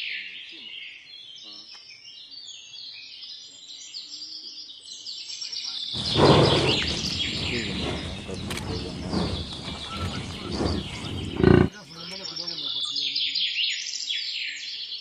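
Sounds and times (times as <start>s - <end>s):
birds chirping and singing: 6.0s - 11.7s
wildebeest herd calling: 6.2s - 11.7s.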